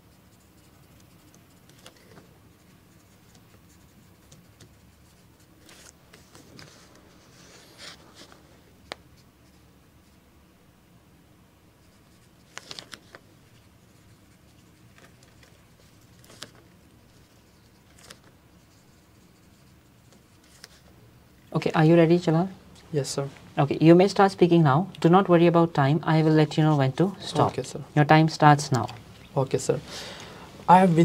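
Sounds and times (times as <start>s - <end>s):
pen scratching on paper: 0.0s - 5.5s.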